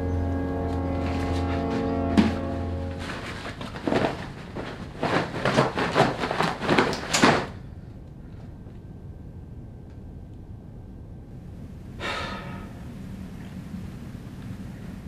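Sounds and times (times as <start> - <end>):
clothing rustling and knocking: 1.1 - 7.6.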